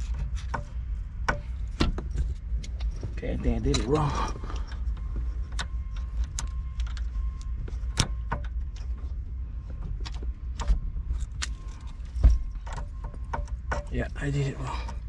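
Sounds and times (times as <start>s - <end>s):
key clicking in ignition lock: 1.7s - 9.0s, 10.0s - 14.0s.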